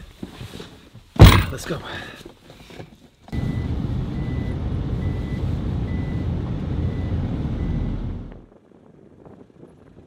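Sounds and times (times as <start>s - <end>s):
vehicle engine rumbling: 3.3s - 10.0s.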